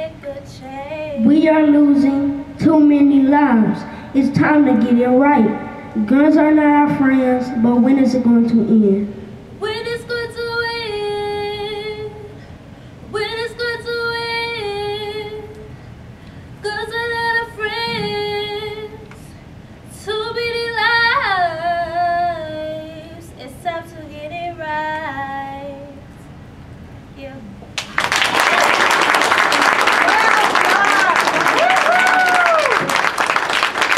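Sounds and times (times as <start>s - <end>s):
girl singing: 0.0s - 8.2s, 9.6s - 12.4s, 13.1s - 15.7s, 16.6s - 26.1s.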